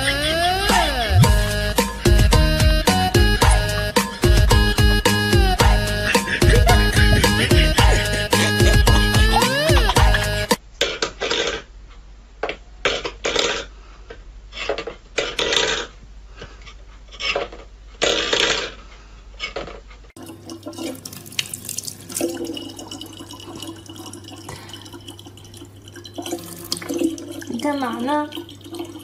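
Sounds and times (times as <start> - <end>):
tap water running into bottle: 20.2 - 29.0.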